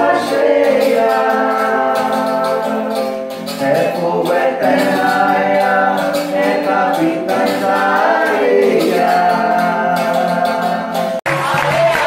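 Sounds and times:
percussion hits: 0:00.0 - 0:12.0
person singing: 0:00.0 - 0:12.0.

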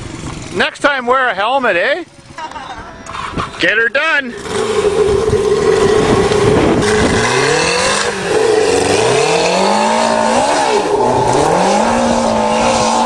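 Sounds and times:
misfiring engine revving: 0:03.1 - 0:13.0.

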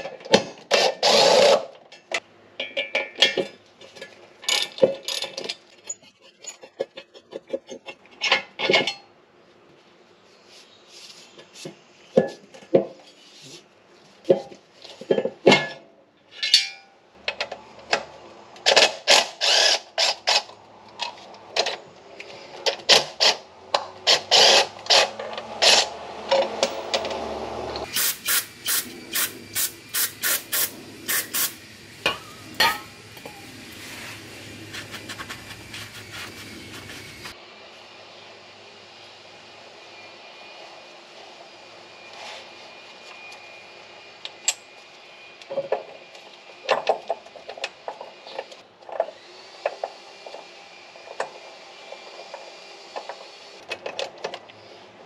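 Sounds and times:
cordless power tool bursts: 0:18.8 - 0:20.4, 0:24.1 - 0:33.5.

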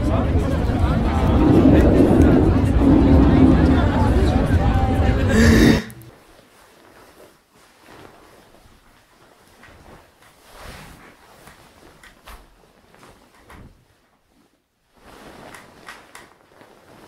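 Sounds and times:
loud dense sound: 0:00.1 - 0:06.1
bedding rustling: 0:06.1 - 0:17.0.

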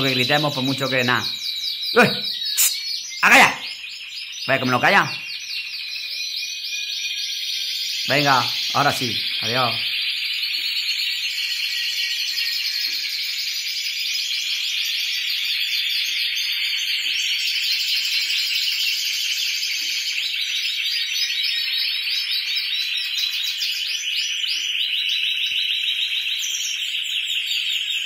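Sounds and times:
canaries trilling: 0:00.0 - 0:28.0.

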